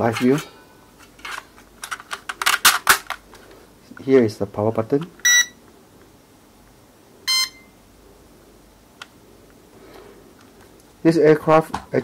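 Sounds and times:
remote controller beep: 5.2s - 5.6s, 7.3s - 7.7s.

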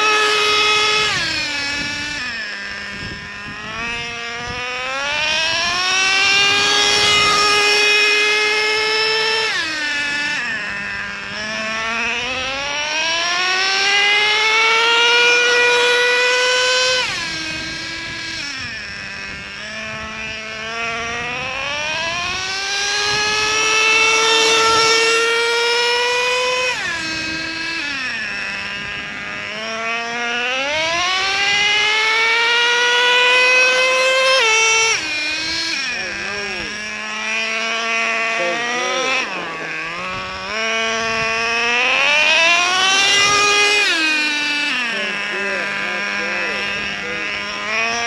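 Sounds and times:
nitro engine revving: 0.0s - 48.0s.

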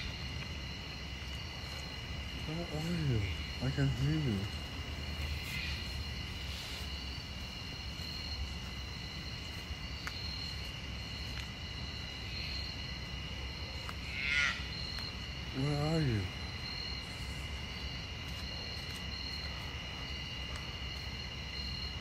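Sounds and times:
insects droning: 0.0s - 22.0s
short buzzy insect call: 5.1s - 6.8s.

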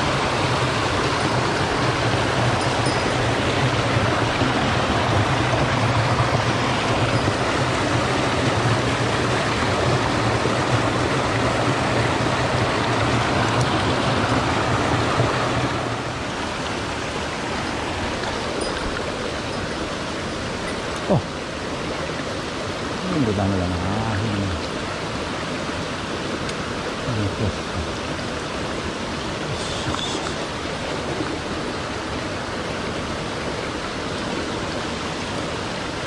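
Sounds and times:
stream rushing over rocks: 0.0s - 36.0s.

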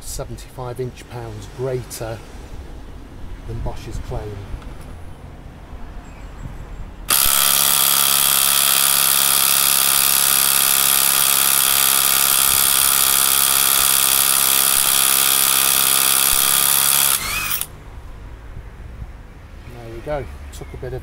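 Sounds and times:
impact wrench hammering: 7.1s - 17.7s.

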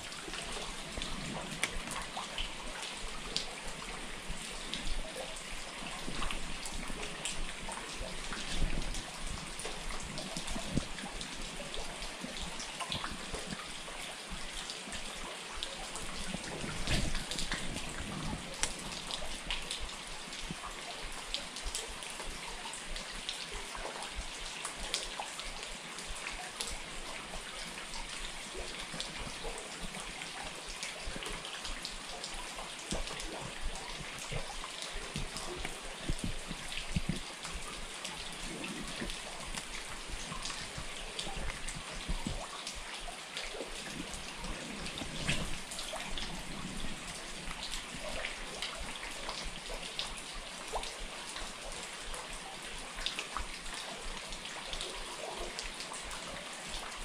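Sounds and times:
raindrop ticks: 0.0s - 57.0s
steady rain hiss: 0.0s - 57.0s.

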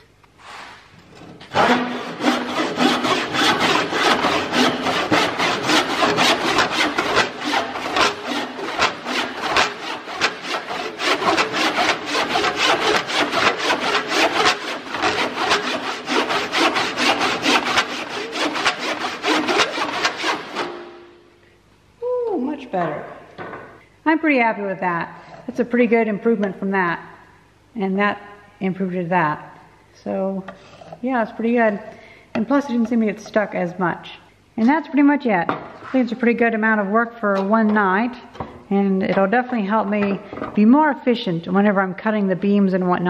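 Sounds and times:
handsaw cutting wood: 1.0s - 21.0s.

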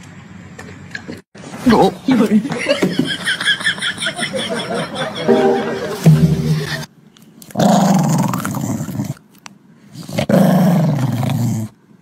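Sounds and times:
small dog growling: 7.6s - 9.2s, 10.0s - 11.8s.

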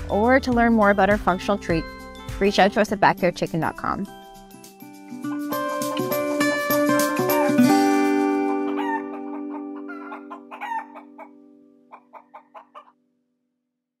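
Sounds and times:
music chord: 5.1s - 11.8s
chicken clucking: 8.4s - 12.9s.

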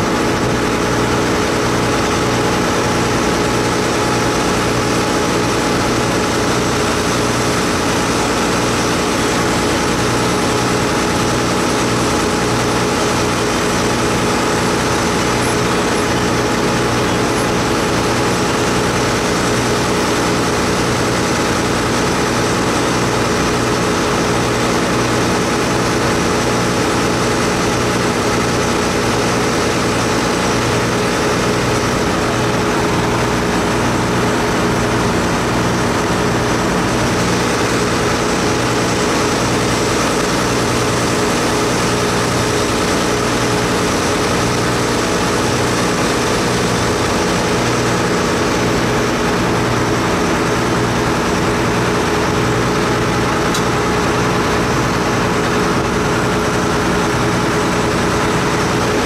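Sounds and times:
diesel engine droning: 0.0s - 59.0s.

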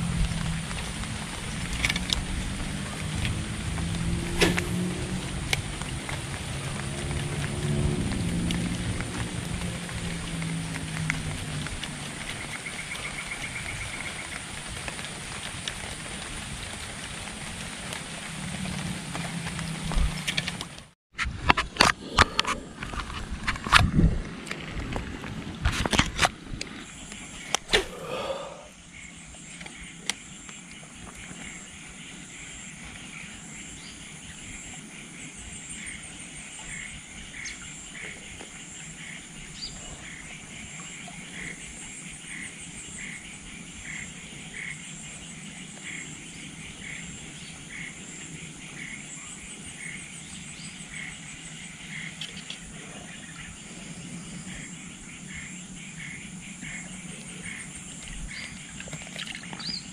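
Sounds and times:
high insect whine: 26.9s - 59.9s
frogs calling in pulses: 34.5s - 59.9s.

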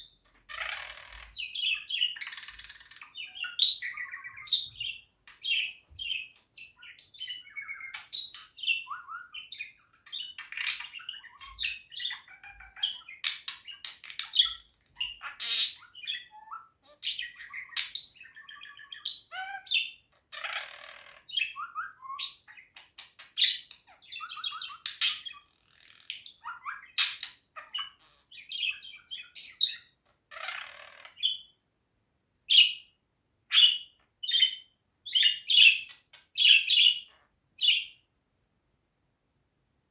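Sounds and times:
budgerigar warbling: 6.8s - 22.0s.

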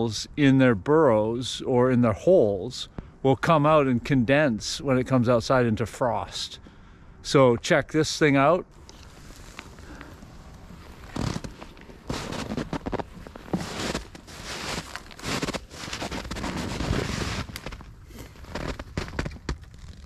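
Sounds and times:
footsteps crunching through snow: 8.9s - 20.0s.

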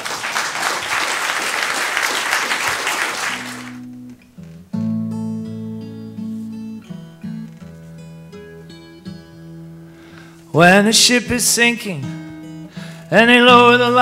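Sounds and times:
audience applause: 0.0s - 3.9s
acoustic guitar strumming chords: 3.4s - 14.0s.

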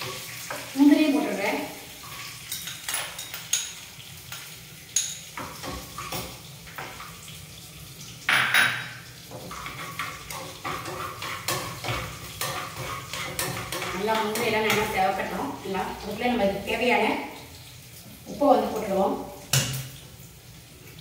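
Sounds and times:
spoon clinking and scraping in pan: 2.4s - 7.0s, 8.3s - 15.0s.

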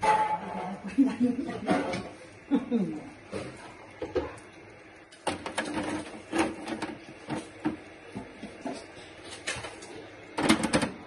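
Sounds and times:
metal pans clattering: 0.0s - 2.2s, 5.2s - 9.8s, 10.4s - 11.0s.

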